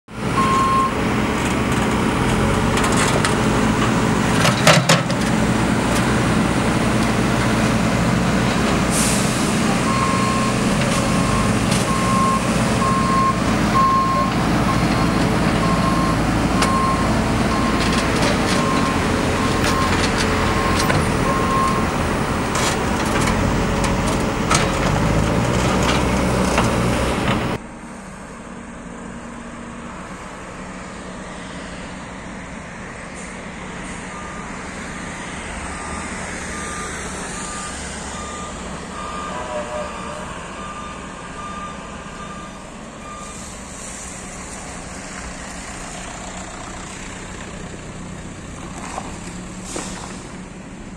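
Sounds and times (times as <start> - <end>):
diesel engine running: 0.1 - 50.9
road traffic hum: 0.1 - 50.9
reversing alarm beeping: 0.4 - 1.0, 9.8 - 25.3, 33.9 - 43.8.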